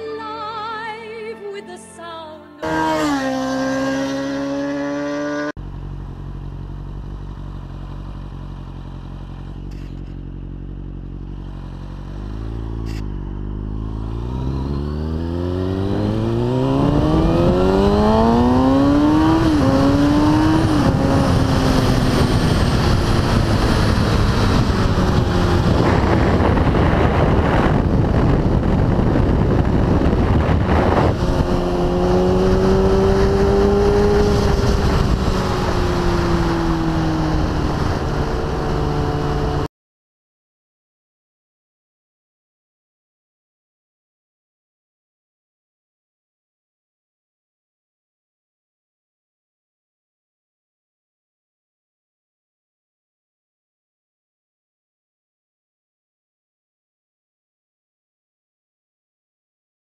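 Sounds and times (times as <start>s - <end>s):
motorcycle engine revving: 2.6s - 39.7s
wind noise on microphone: 15.6s - 39.6s.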